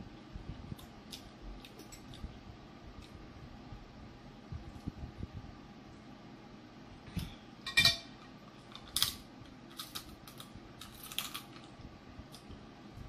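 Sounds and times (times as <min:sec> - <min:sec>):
metal clinking on glass: 0:07.7 - 0:08.2
crab shell cracking: 0:08.7 - 0:11.7.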